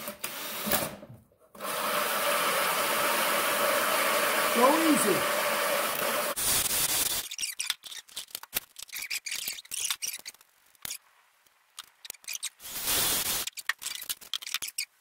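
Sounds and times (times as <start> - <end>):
cordless drill spinning: 1.6 - 6.4.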